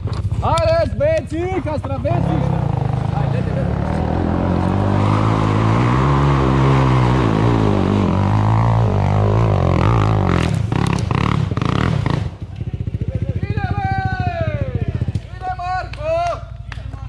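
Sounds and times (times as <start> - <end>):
atv engine revving under load: 2.1 - 12.4.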